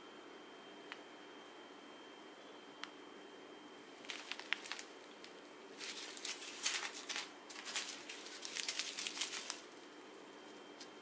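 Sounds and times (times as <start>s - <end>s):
tiny beads rattling in bags: 4.0s - 9.7s
plastic bags crinkling: 4.0s - 9.9s.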